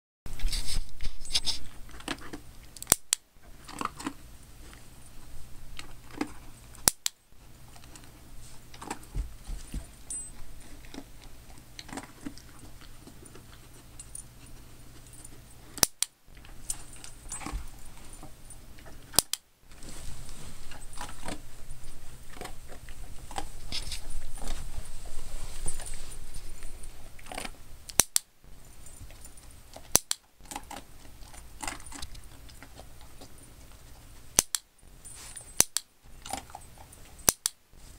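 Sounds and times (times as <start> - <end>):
sharp clicks: 6.8 - 7.2, 15.8 - 16.1, 19.1 - 19.4, 27.3 - 28.3, 29.8 - 30.8, 34.4 - 34.7, 35.6 - 36.4
dog collar tags jingling: 8.8 - 11.3, 16.4 - 18.6, 28.6 - 29.9, 30.6 - 32.8, 34.9 - 37.3
cloth rustling: 19.7 - 22.5, 23.2 - 26.9.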